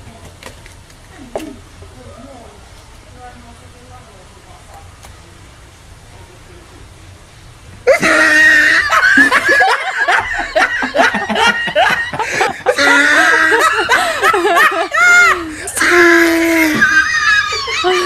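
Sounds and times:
people laughing loudly: 7.9 - 18.0.

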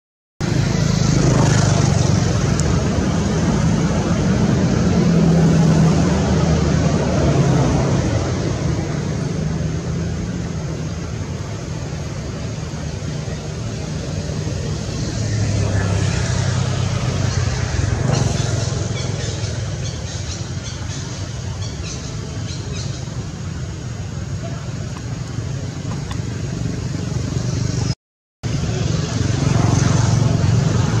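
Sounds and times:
motor engine humming: 22.2 - 28.0.

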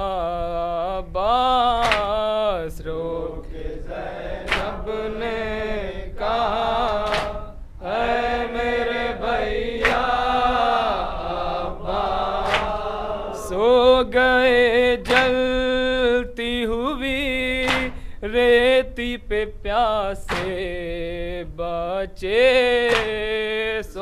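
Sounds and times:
men chanting in unison: 0.0 - 16.3
hand slap on chest: 1.8 - 2.2, 4.5 - 4.8, 6.9 - 7.4, 9.8 - 10.1, 12.4 - 12.8, 15.0 - 15.4, 17.6 - 18.0, 20.3 - 20.6, 22.9 - 23.2.

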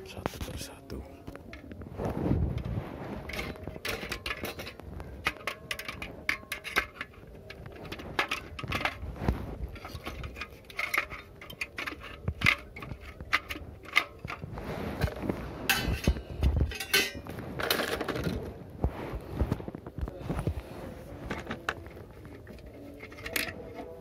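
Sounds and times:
metal scraping: 0.0 - 24.0
small metal parts clinking: 3.3 - 9.0, 9.7 - 14.4, 15.7 - 18.4.

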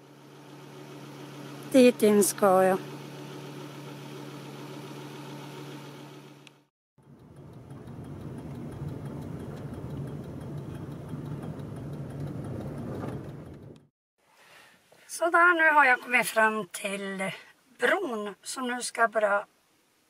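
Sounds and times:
car driving with road rumble: 0.0 - 13.9
car engine idling: 0.0 - 13.9.

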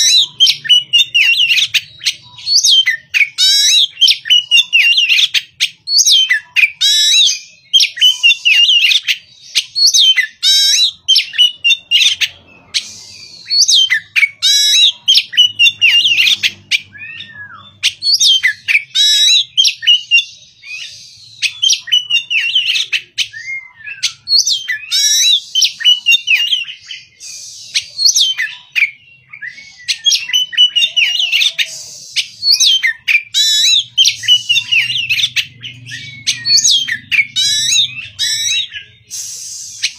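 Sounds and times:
bird singing whistled phrases: 0.0 - 39.9.

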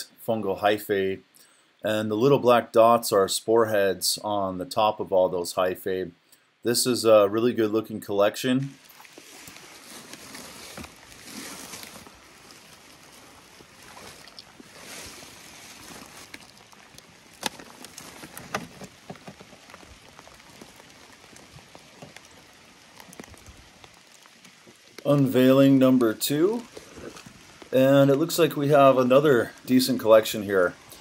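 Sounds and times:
dry leaves rustling and crunching: 8.8 - 25.7, 26.5 - 31.0.

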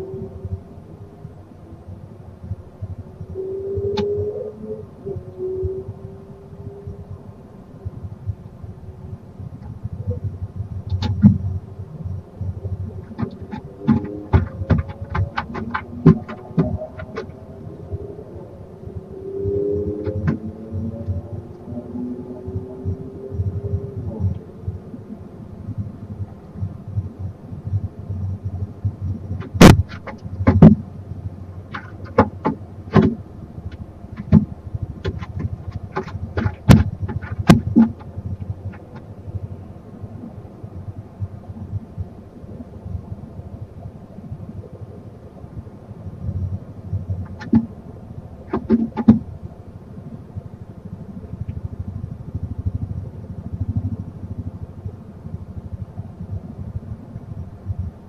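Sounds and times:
steady low hum: 0.0 - 58.0
steady low rumble: 0.0 - 58.0
owl knocking and scraping on wood: 13.1 - 17.3, 31.7 - 33.2, 34.2 - 38.1, 48.5 - 49.2.

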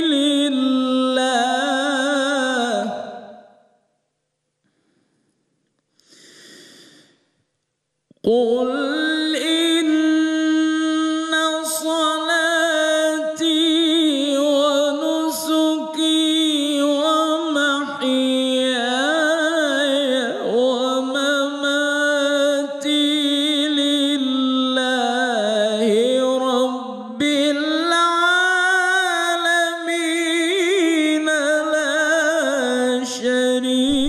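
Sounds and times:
man reciting melodically: 0.0 - 3.3, 8.2 - 34.0
short breath: 4.6 - 7.5.

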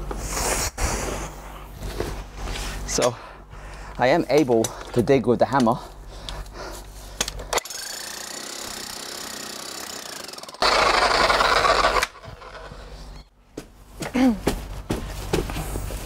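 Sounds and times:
electric demolition hammer: 7.6 - 12.9.

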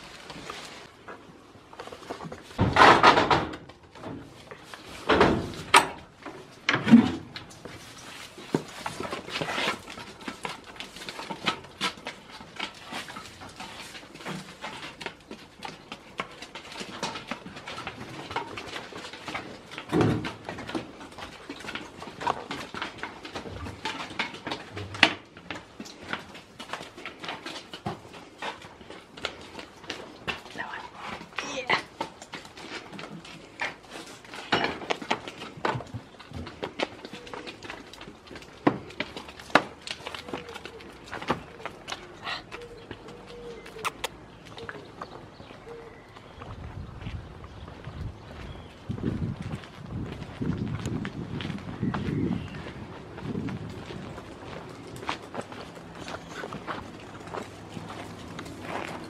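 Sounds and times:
rustling in straw: 0.0 - 1.0.

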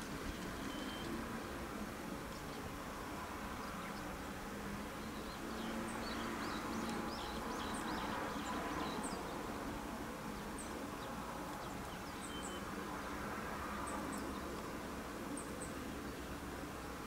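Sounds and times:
background hiss and rumble: 0.0 - 17.0
faint high chirps: 0.6 - 1.2.

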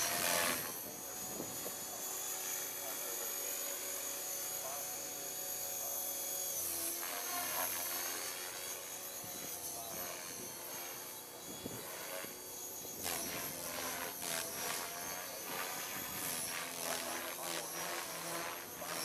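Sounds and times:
rushes of blade noise: 0.0 - 2.0
rc helicopter motor whine: 0.0 - 19.0.

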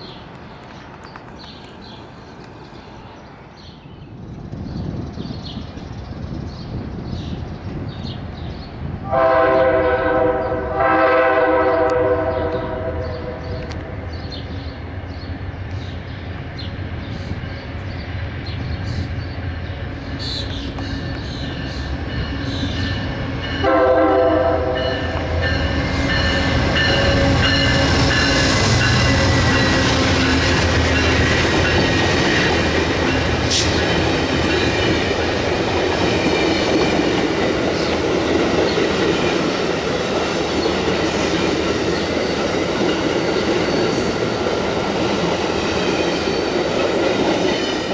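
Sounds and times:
train wheels on rails: 0.0 - 47.9
locomotive air horn: 9.1 - 13.4, 23.6 - 25.3.

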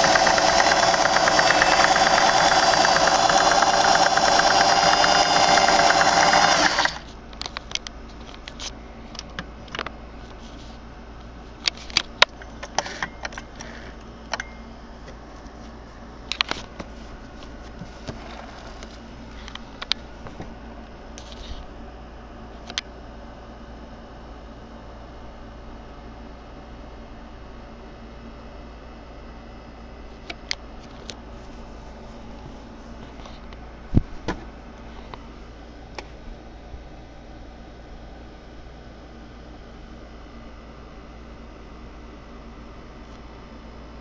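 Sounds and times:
sewing machine stitching: 0.0 - 7.1.

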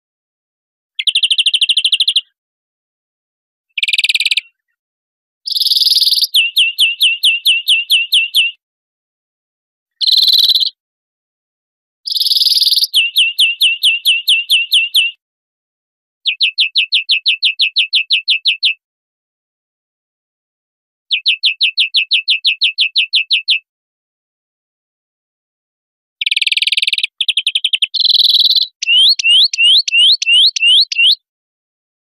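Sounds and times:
bird rapid chirping notes: 1.0 - 2.2, 3.8 - 4.4, 5.5 - 8.5, 10.0 - 10.7, 12.1 - 15.1, 26.2 - 31.2.

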